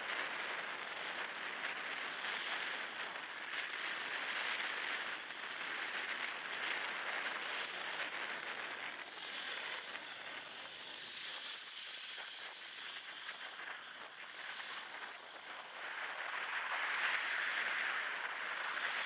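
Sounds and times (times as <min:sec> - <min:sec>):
waves washing onto shell beach: 0:00.0 - 0:19.0
wind: 0:00.0 - 0:19.0.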